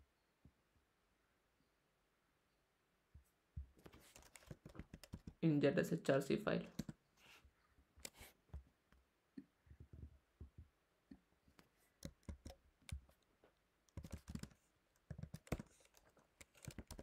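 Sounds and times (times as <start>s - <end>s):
keyboard and trackpad clicks: 3.8s - 5.4s, 6.7s - 7.0s, 11.6s - 13.3s, 13.9s - 17.0s.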